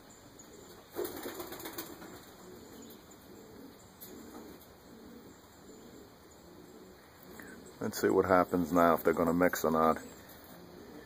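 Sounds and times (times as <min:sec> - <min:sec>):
pigeon wings flapping: 0:00.9 - 0:02.3.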